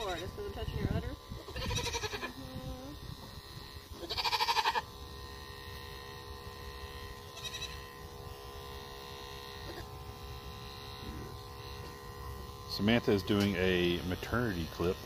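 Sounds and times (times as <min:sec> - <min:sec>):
electric clippers humming: 0:00.0 - 0:15.0
goat bleating: 0:01.4 - 0:02.5, 0:04.0 - 0:05.0, 0:07.4 - 0:07.9.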